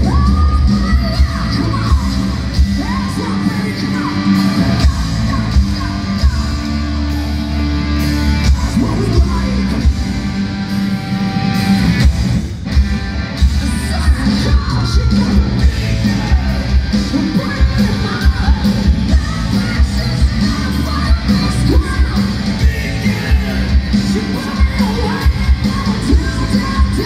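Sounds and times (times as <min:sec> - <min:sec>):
bass guitar: 0:00.0 - 0:27.0
distorted electric guitars: 0:00.0 - 0:27.0
drums: 0:00.0 - 0:27.0
person singing: 0:13.6 - 0:27.0.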